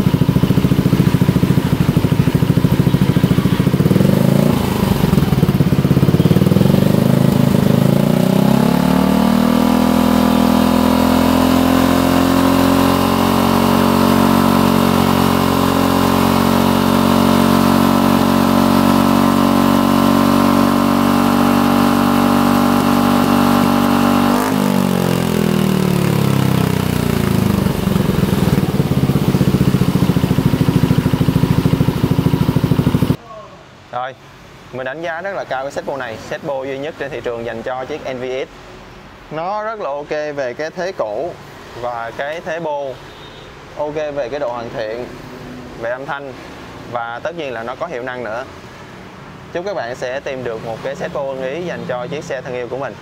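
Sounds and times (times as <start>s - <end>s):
scooter engine revving: 0.0s - 33.2s.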